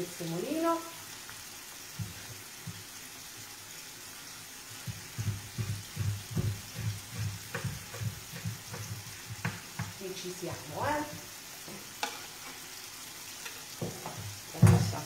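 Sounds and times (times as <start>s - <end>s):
frying pan sizzle: 0.0s - 15.0s
knife chopping on wooden board: 4.8s - 10.0s.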